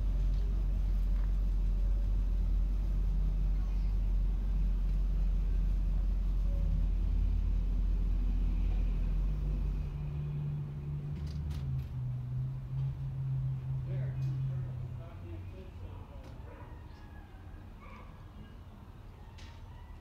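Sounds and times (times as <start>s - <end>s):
car engine rumbling: 0.0s - 20.0s.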